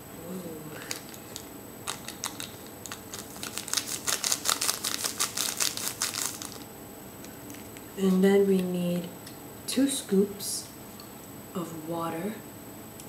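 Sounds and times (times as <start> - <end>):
foil sachet crinkling: 0.8 - 8.2.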